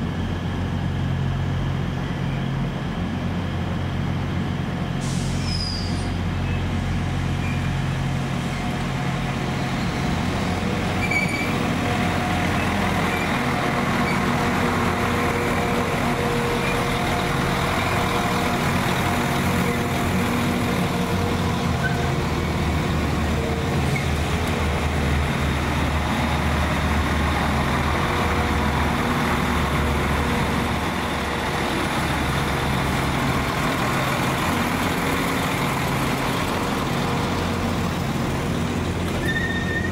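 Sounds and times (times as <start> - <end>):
train engine hum: 0.0 - 39.9
train brake squeal: 5.0 - 6.7, 7.4 - 7.8, 10.9 - 11.6, 21.8 - 22.1, 39.2 - 39.9.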